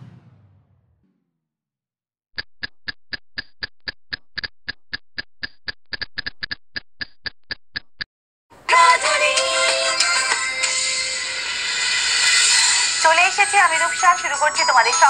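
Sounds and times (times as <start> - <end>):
rapid ticking clicks: 2.4 - 8.1.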